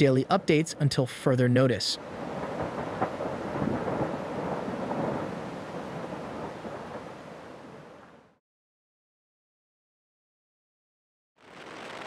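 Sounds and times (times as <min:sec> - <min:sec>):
lava fountain rumbling: 0:02.0 - 0:08.0.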